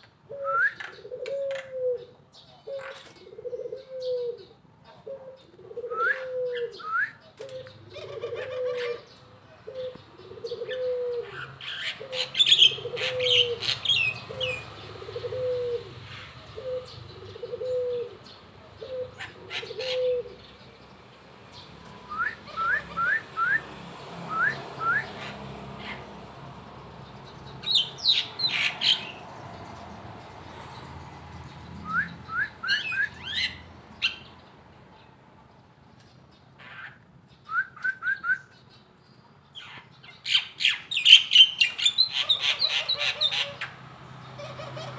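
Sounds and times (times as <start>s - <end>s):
songbird chirping and twittering: 0.0s - 44.9s
dove cooing: 0.2s - 20.6s, 21.9s - 26.3s, 40.6s - 44.9s.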